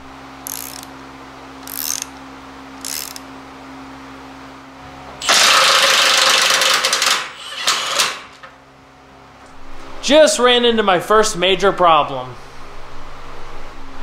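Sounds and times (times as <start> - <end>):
impact wrench running: 0.4 - 0.9, 1.6 - 2.2, 2.8 - 3.3, 5.2 - 8.5
socket ratchet clicking: 0.4 - 0.9, 1.6 - 2.2, 2.8 - 3.3.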